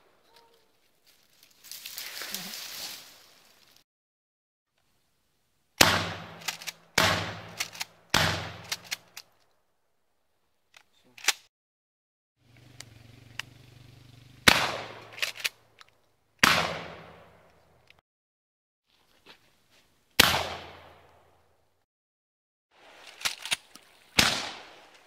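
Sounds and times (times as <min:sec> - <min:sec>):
shotgun shots with echo: 0:05.8 - 0:08.8, 0:14.4 - 0:15.3, 0:16.4 - 0:17.4, 0:20.2 - 0:21.1, 0:24.2 - 0:24.9.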